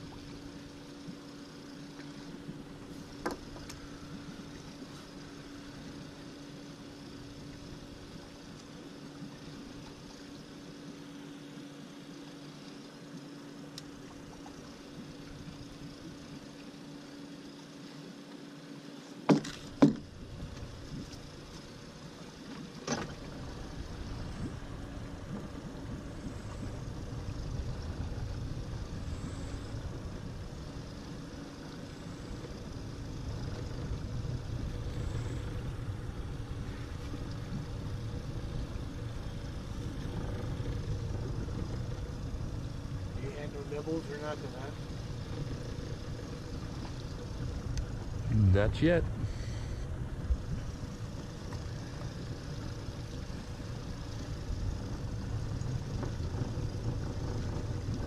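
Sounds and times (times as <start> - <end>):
outboard motor humming: 0.0 - 58.0
low rumble: 23.2 - 43.4, 44.0 - 58.0.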